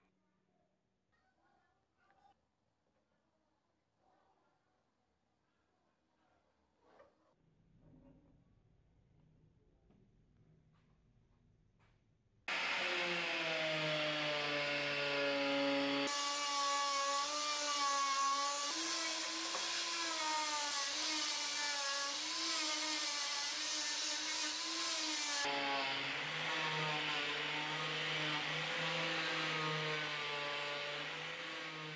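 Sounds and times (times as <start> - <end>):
angle grinder polishing metal: 12.5 - 31.9.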